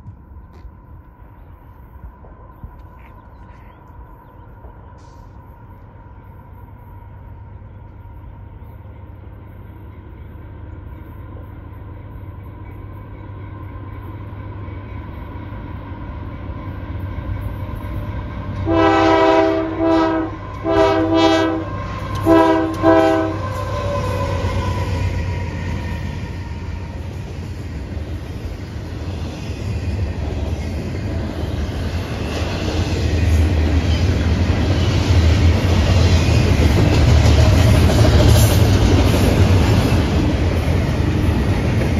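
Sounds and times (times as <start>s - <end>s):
diesel locomotive rumble: 0.0s - 41.9s
train wheel clatter: 16.4s - 41.9s
locomotive air horn: 18.6s - 25.0s.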